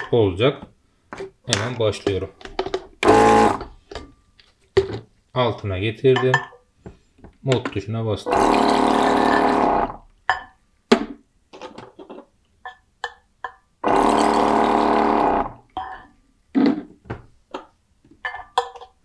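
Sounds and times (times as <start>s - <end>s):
pump motor humming: 3.0s - 3.6s, 8.3s - 10.0s, 13.8s - 15.6s.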